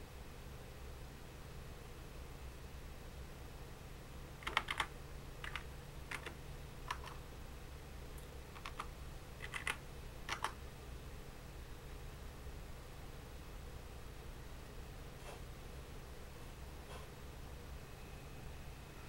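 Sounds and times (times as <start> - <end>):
faint steady low hum: 0.0 - 19.0
keyboard keystrokes: 4.4 - 7.2, 8.6 - 10.6.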